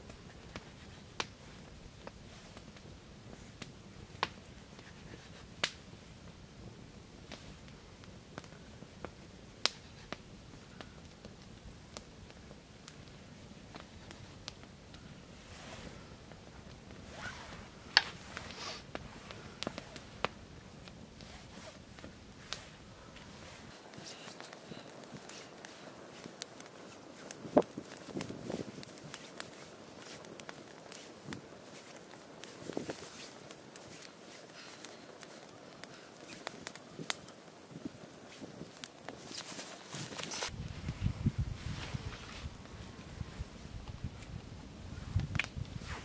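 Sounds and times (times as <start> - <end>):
steady low rumble: 40.5 - 45.8.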